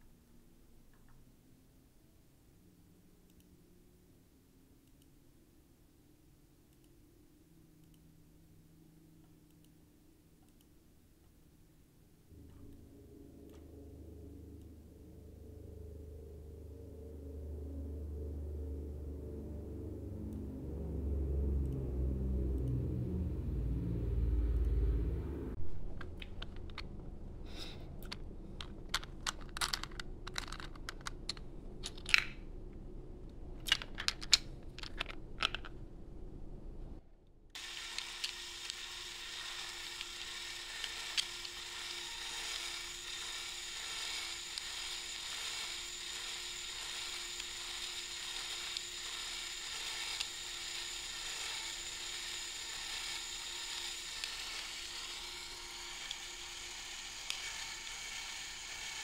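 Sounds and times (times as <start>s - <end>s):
cordless drill whirring: 37.6s - 59.0s.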